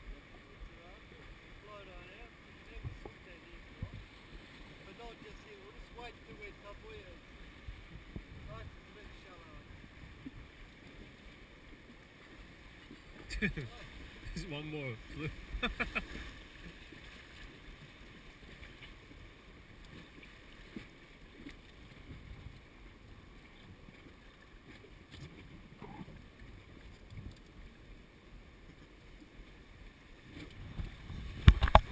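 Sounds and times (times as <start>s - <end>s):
wind rumble on microphone: 2.7s - 4.1s, 7.6s - 10.5s, 21.9s - 23.9s, 30.2s - 31.9s.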